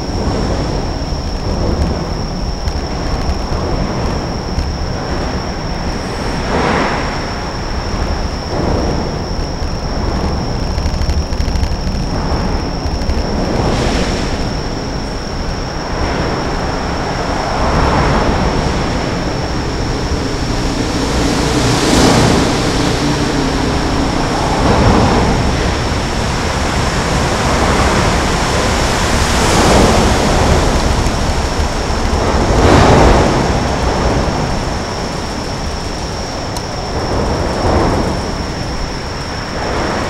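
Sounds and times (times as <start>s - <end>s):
road traffic rumble: 0.0s - 40.0s
vehicles passing: 15.8s - 28.5s.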